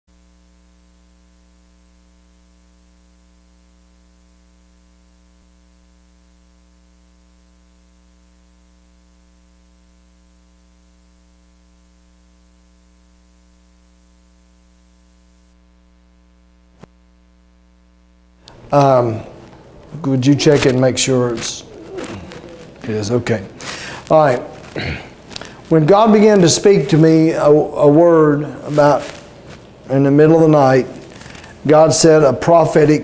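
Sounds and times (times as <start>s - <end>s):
electrical mains hum: 0.1s - 33.0s
faint hiss: 18.4s - 33.0s.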